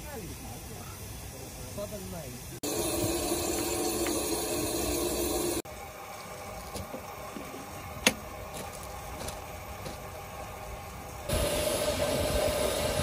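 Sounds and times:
steam hissing: 0.0s - 13.0s.

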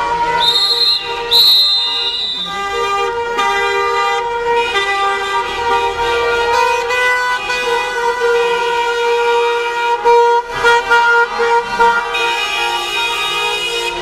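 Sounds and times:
many car horns honking: 0.0s - 14.0s
short shrill high toots: 0.4s - 2.7s.

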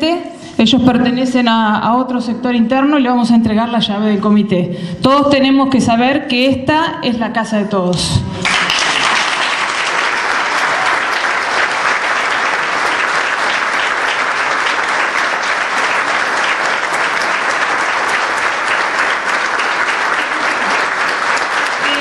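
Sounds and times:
crowd applauding: 8.4s - 22.0s.

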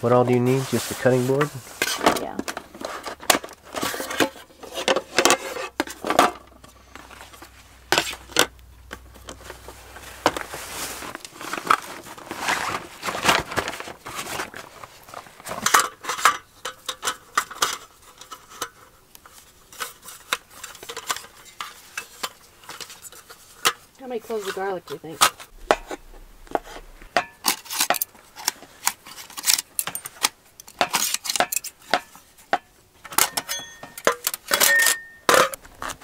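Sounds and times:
utensils and dishes clattering: 29.2s - 32.2s, 33.1s - 35.6s.

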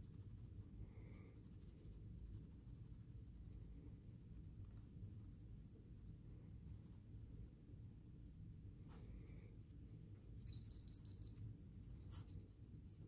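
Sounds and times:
low room rumble: 0.0s - 13.0s
cotton swab scratching metal: 10.3s - 13.0s.

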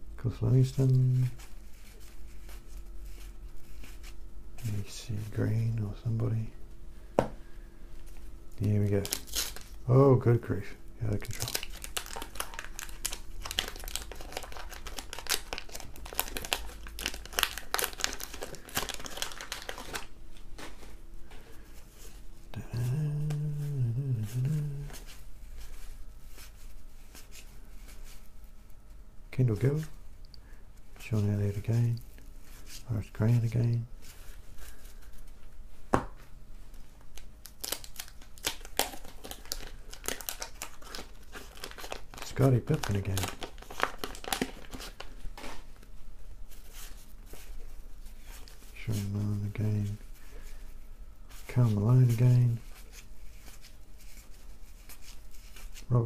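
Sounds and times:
paper wrapper crinkling and tearing: 8.6s - 20.9s, 37.0s - 45.9s
card handling: 11.0s - 21.4s
person humming: 22.5s - 25.2s.

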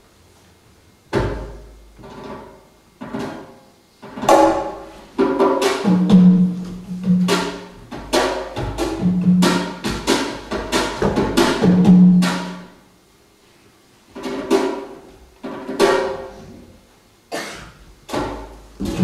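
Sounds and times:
drum strikes: 4.0s - 12.8s, 14.2s - 16.4s, 17.3s - 19.0s
percussion rhythm: 4.2s - 12.8s, 14.2s - 16.4s, 18.1s - 19.0s.

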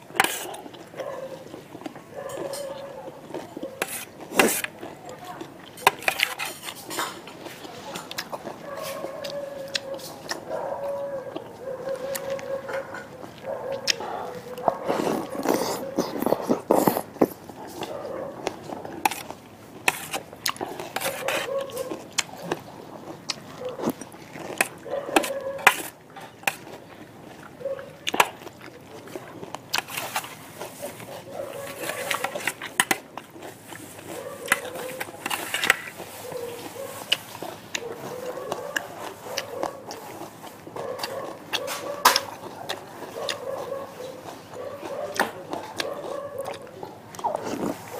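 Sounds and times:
slurping and chewing: 0.0s - 47.9s
metal spoon scraping metal tray: 0.2s - 0.6s, 3.8s - 4.7s, 5.8s - 7.2s, 19.0s - 20.2s, 20.9s - 21.5s, 31.6s - 33.0s, 34.5s - 36.0s.

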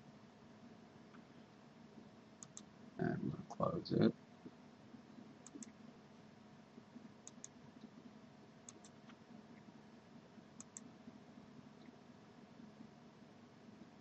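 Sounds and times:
low steady hum: 0.0s - 14.0s
computer mouse clicks: 2.4s - 2.7s, 5.4s - 5.8s, 7.2s - 7.9s, 8.6s - 9.2s, 10.6s - 10.9s.

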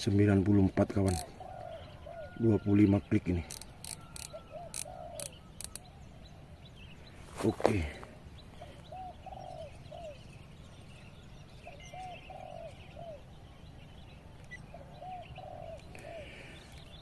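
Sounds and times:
small birds chirping: 0.0s - 17.0s
dove cooing: 0.9s - 2.7s, 3.7s - 5.8s, 8.6s - 10.2s, 11.7s - 13.4s, 14.7s - 16.8s.

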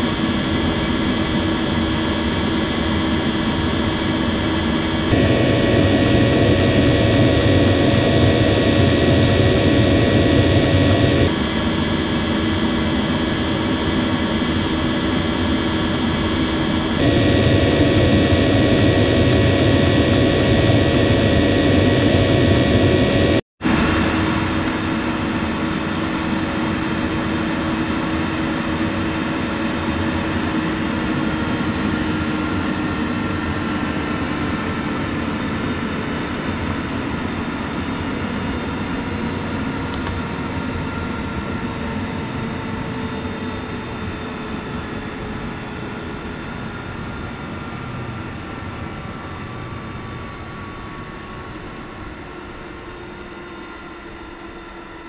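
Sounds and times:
heater fans whirring: 5.1s - 11.3s.

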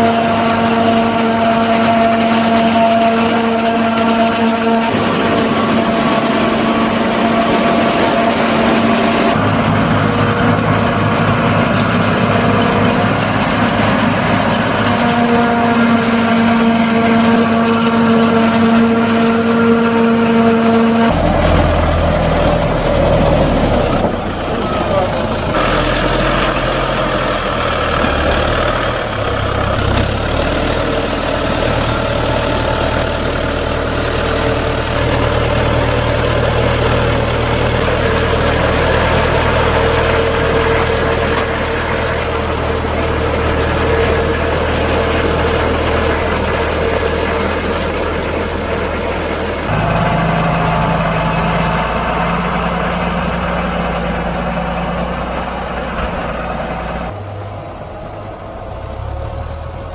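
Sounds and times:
diesel tractor engine running: 0.0s - 59.9s
tractor engine idling: 0.0s - 59.9s.

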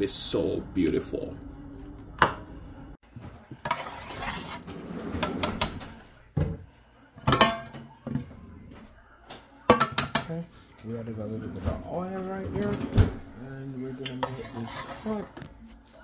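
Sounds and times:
wooden spatula scraping frying pan: 3.6s - 5.0s, 14.2s - 15.2s.

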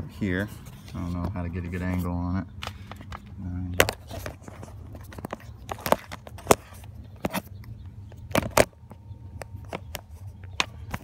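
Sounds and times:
low steady hum: 0.0s - 11.0s.

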